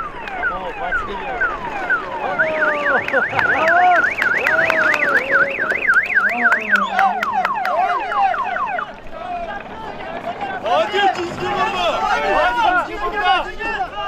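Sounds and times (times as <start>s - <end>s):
electronic siren warbling: 0.0s - 9.0s.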